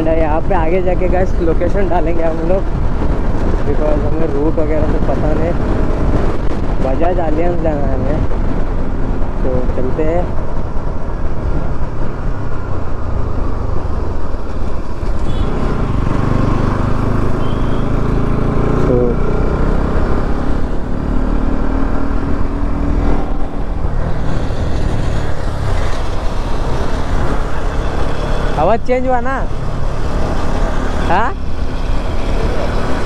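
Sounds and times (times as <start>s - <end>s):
wind rushing over microphone: 0.0s - 33.0s
motorcycle engine accelerating: 10.0s - 33.0s.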